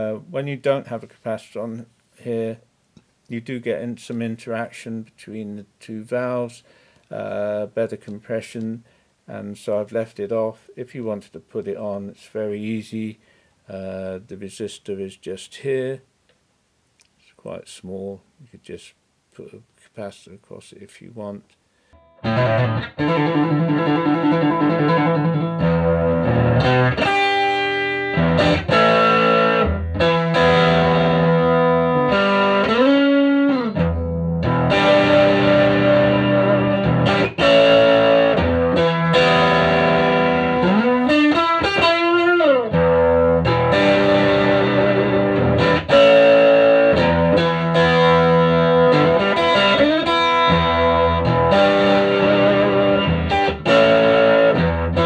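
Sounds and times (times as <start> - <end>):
electric guitar single notes: 21.9 - 55.0.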